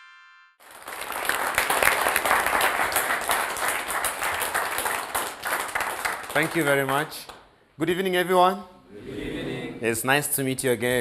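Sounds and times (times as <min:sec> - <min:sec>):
audience applauding: 0:00.6 - 0:07.4.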